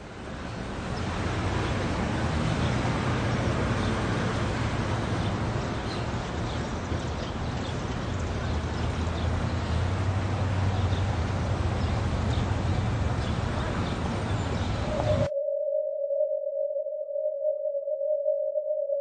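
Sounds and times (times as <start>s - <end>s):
dense noisy rumble: 0.0s - 15.3s
low hum: 14.2s - 19.0s
steady beep tone: 14.9s - 19.0s.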